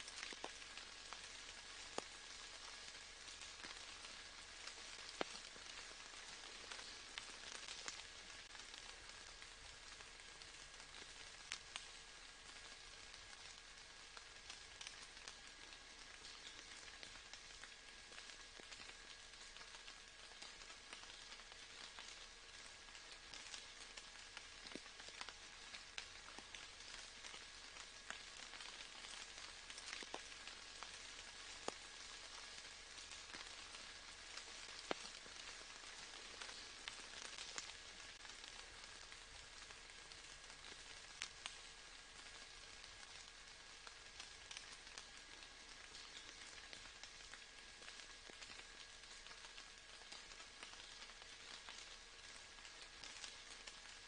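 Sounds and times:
faint steady rain: 0:00.0 - 0:54.0
raindrops ticking: 0:00.0 - 0:54.0.

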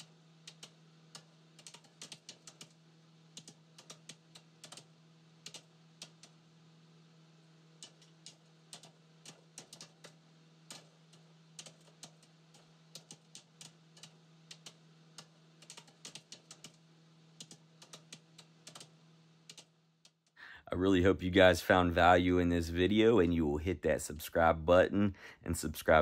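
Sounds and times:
keyboard typing clicks: 0:00.0 - 0:06.4, 0:07.8 - 0:10.9, 0:11.6 - 0:12.3, 0:12.9 - 0:16.8, 0:17.4 - 0:18.9, 0:19.5 - 0:20.4
low steady hum: 0:00.0 - 0:26.0.

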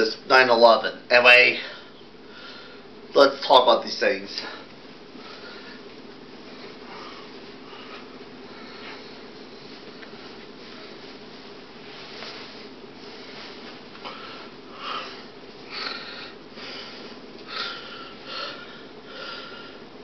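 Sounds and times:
steady hum: 0:00.0 - 0:20.0
fabric puppet handling noise: 0:08.8 - 0:14.6.

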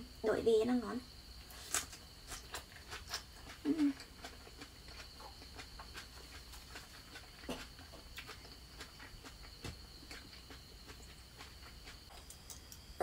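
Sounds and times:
chewing mouth sounds: 0:02.4 - 0:12.1.

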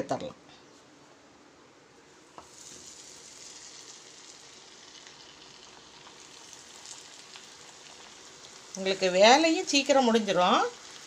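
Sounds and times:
chicken deep-frying in oil: 0:02.3 - 0:11.0.

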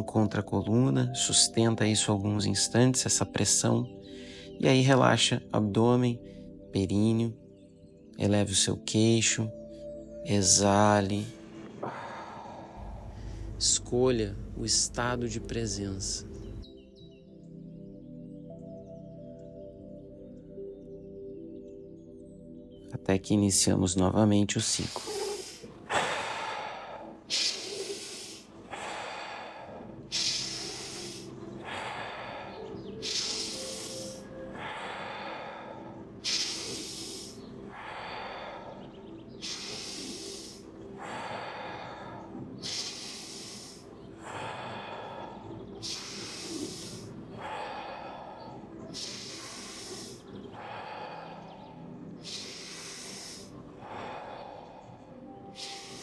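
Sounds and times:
soft background music: 0:00.0 - 0:56.0
person breathing rhythmically: 0:03.9 - 0:04.6, 0:06.2 - 0:06.7, 0:09.5 - 0:10.2, 0:11.1 - 0:22.6, 0:24.7 - 0:56.0.

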